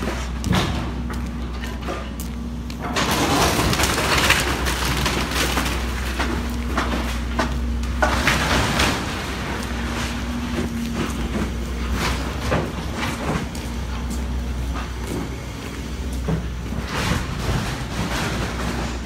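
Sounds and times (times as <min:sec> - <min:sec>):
footsteps on wet pavement: 0:00.0 - 0:02.9, 0:05.8 - 0:08.4, 0:09.0 - 0:16.8
engine hum and rumble: 0:00.0 - 0:19.0.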